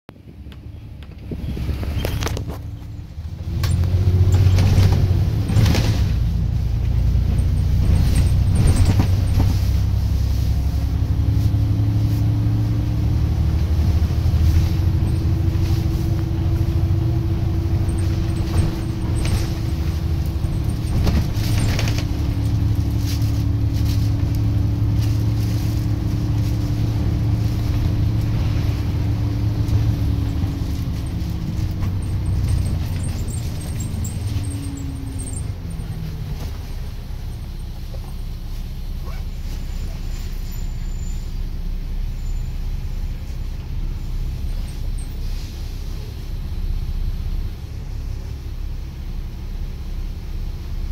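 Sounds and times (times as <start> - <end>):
bus diesel engine droning: 0.1 - 50.9
drivetrain whine: 0.1 - 50.9
body rattles and knocks: 1.1 - 10.1, 13.9 - 38.4.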